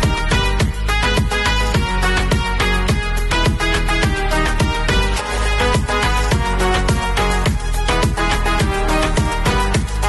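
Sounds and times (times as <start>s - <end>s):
upbeat music with drum beat: 0.0s - 10.0s.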